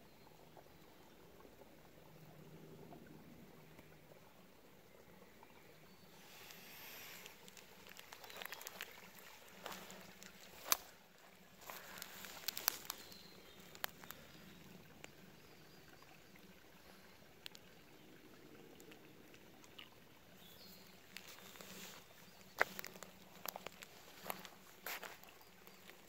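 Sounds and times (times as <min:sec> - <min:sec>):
rustling in dry leaves: 0:06.2 - 0:14.5, 0:21.1 - 0:26.0
twigs clicking and snapping: 0:07.2 - 0:11.0, 0:11.6 - 0:14.3, 0:21.1 - 0:26.0.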